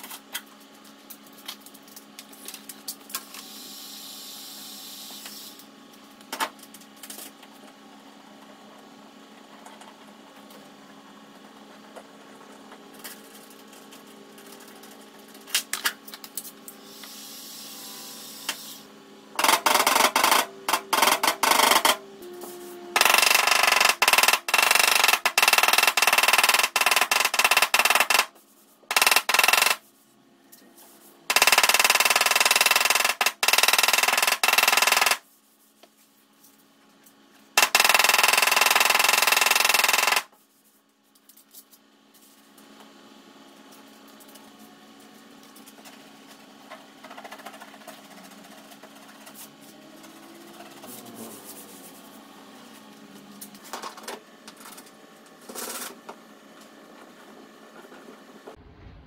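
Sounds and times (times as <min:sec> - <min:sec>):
power tool rattling and whining: 0:23.0 - 0:28.3
low hum: 0:58.5 - 0:59.0.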